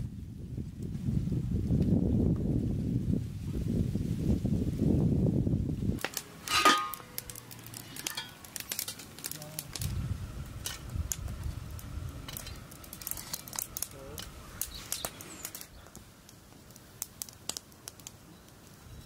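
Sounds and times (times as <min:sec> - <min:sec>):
dried leaves crackling: 0:05.8 - 0:19.0
low muffled rumble: 0:09.3 - 0:15.0.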